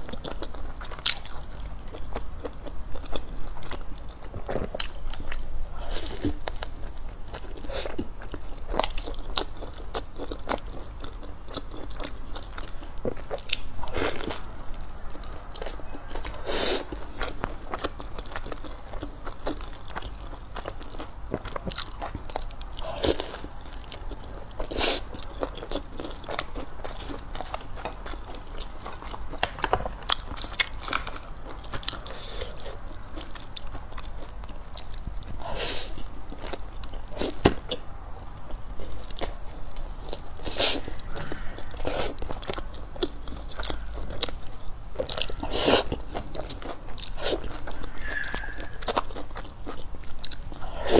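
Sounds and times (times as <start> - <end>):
person chewing crunchy food: 0.0 - 50.9.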